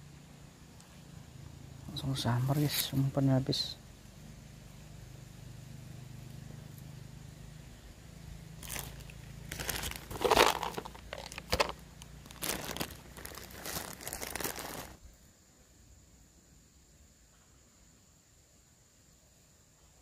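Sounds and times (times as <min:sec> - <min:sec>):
crinkling and crunching: 0:08.6 - 0:15.0.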